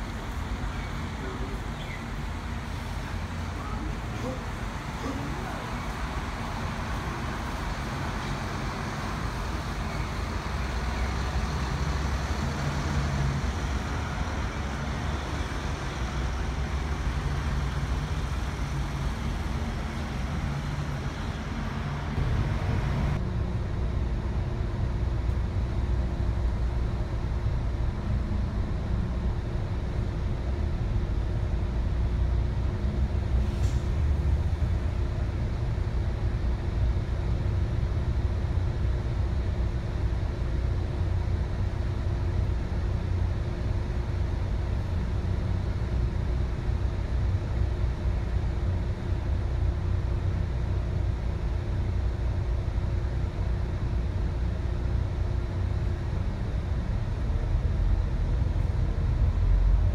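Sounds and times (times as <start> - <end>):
bus interior drone: 0.0 - 59.9
diesel bus engines pulling away: 0.0 - 59.9
traffic noise: 0.0 - 59.9.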